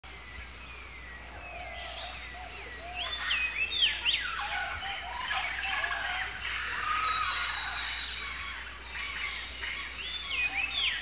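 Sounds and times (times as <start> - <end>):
falling whistles of birds: 2.2 - 11.0
looping bird whistles: 6.5 - 8.3.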